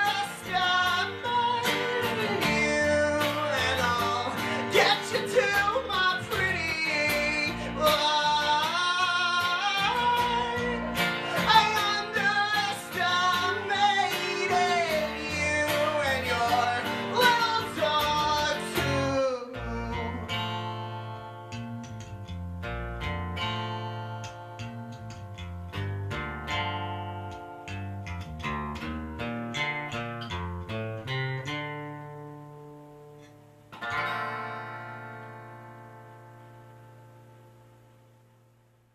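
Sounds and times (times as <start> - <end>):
wordless singing: 0.0 - 21.3
acoustic guitar: 0.0 - 38.9
electric bass: 0.0 - 38.9.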